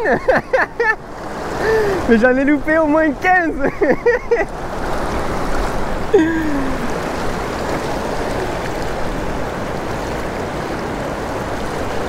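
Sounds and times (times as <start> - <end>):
river current rushing: 0.0 - 12.0.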